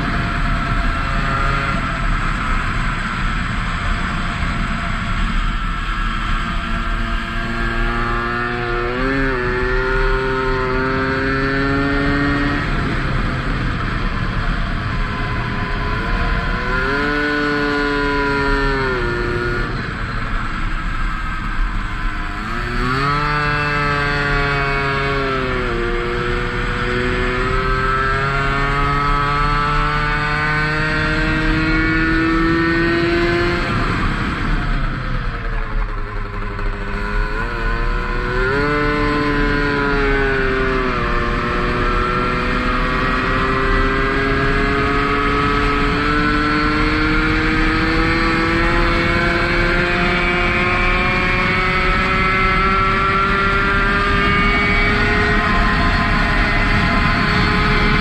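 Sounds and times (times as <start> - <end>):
two-stroke moped engine revving: 22.2 - 58.0.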